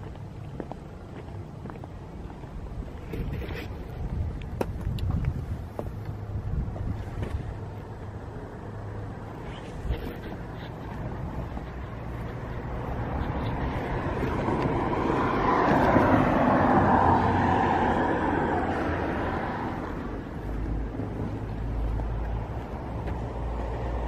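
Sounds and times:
road vehicle passing by: 5.4s - 24.0s.

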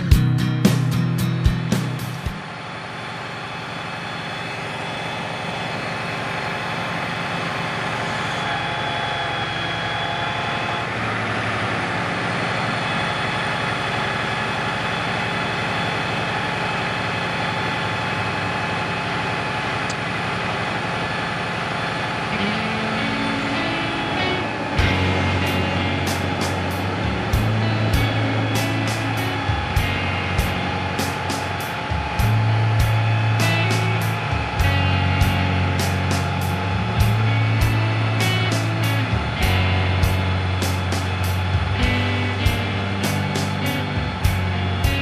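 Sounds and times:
truck engine running: 0.0s - 45.0s.

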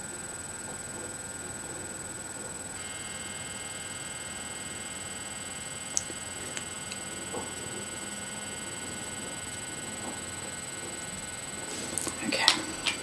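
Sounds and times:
electrical hum and hiss: 0.0s - 13.0s
sharp click: 5.9s - 7.0s.

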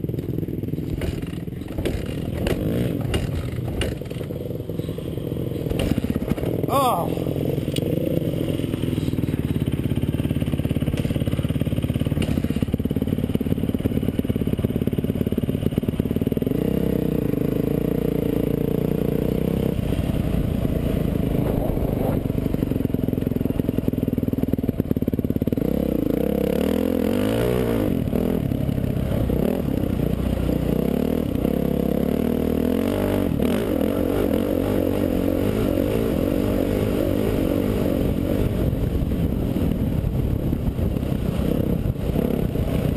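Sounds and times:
dirt bike engine revving: 0.8s - 12.9s, 16.2s - 23.9s, 24.6s - 38.8s.

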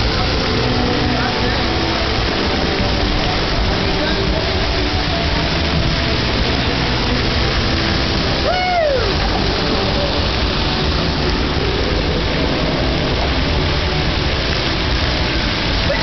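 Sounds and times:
fountain jets spraying water: 0.0s - 16.0s.

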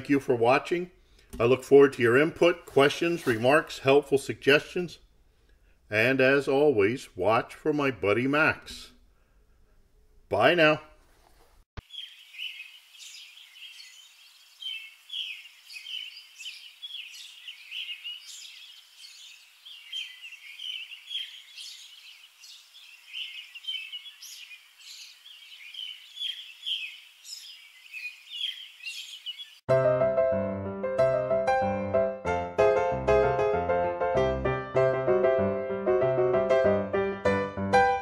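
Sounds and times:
small birds chirping: 11.8s - 29.7s.

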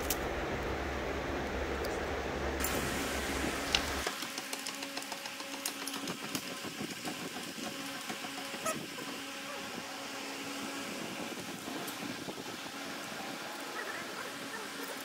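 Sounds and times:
faint hum: 0.0s - 4.1s.

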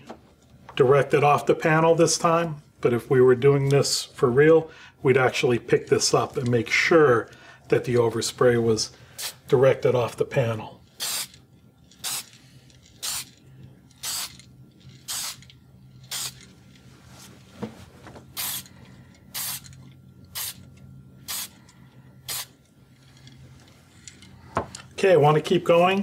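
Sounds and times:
aerosol paint spraying: 11.0s - 11.4s, 12.0s - 12.4s, 13.0s - 13.4s, 14.0s - 14.4s, 15.0s - 16.5s, 18.4s - 18.7s, 19.3s - 19.7s, 20.3s - 20.6s, 21.2s - 21.6s, 22.3s - 22.6s.

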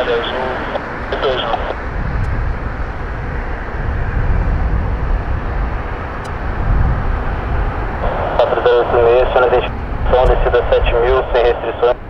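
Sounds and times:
jet engines rumbling: 0.0s - 12.0s.

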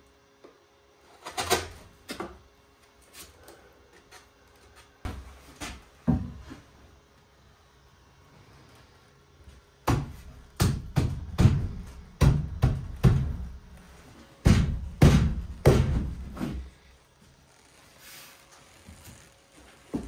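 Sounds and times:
heavy thuds on wooden sill: 14.4s - 16.4s.

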